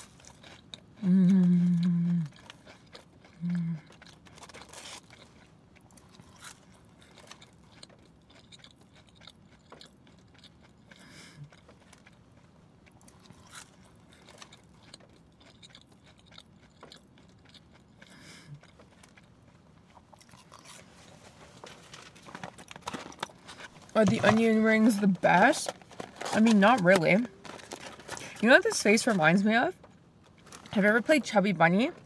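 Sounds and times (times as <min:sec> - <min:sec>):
crunching and chewing food: 0:00.0 - 0:32.0.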